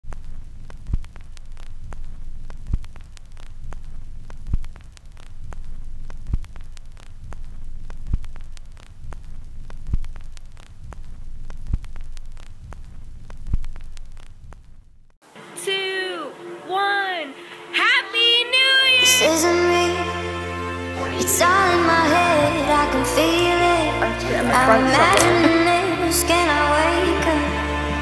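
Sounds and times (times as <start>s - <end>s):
crackling clicks: 0.0s - 15.2s.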